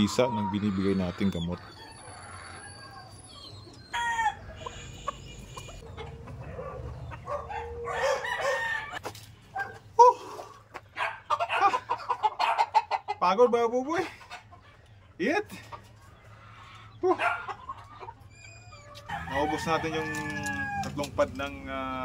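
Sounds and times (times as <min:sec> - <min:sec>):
roosters crowing and clucking: 0:00.0 - 0:22.0.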